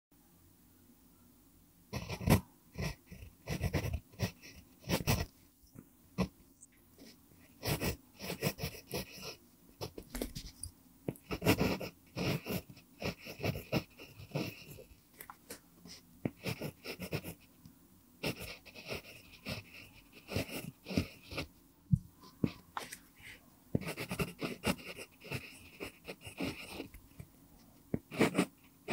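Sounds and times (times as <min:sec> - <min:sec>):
pencil scratching on paper: 0:01.9 - 0:05.3, 0:07.0 - 0:15.0, 0:15.9 - 0:17.5, 0:18.2 - 0:21.5, 0:22.2 - 0:28.9.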